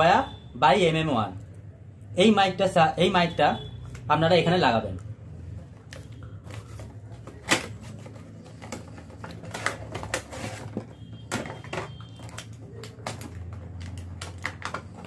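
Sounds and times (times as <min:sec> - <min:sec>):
cardboard and plastic rustling: 0:05.6 - 0:15.0.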